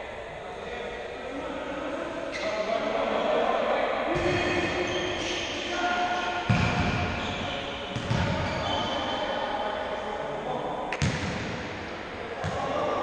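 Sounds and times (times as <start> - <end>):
ball kicked with echoing thud: 6.4 - 7.3, 7.9 - 8.5, 10.9 - 11.8, 12.4 - 12.7.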